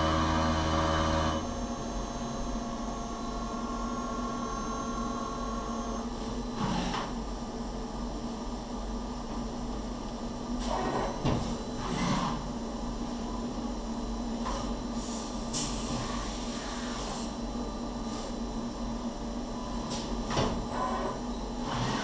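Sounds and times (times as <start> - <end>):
milling machine humming: 0.0 - 14.9.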